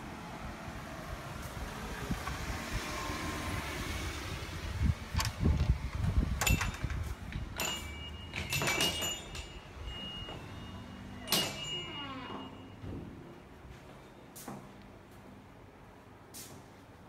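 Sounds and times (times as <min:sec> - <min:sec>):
low rumbling handling noise: 0:04.6 - 0:14.9.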